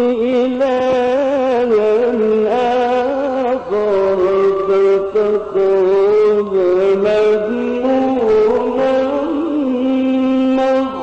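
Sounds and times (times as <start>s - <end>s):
man reciting melodically: 0.0s - 11.0s.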